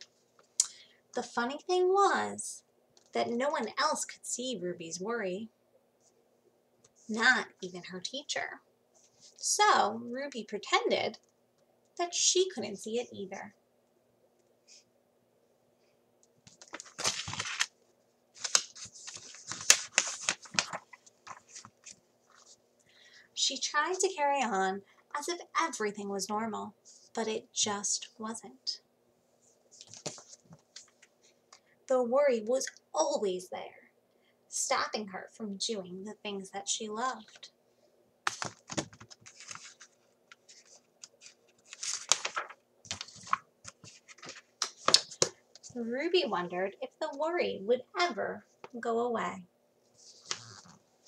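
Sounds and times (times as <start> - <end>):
book pages rustling: 16.4 - 17.8, 18.4 - 22.6, 29.5 - 31.2, 38.3 - 45.8, 49.9 - 50.8
book page turning clicks: 38.3 - 39.9, 41.2 - 45.4.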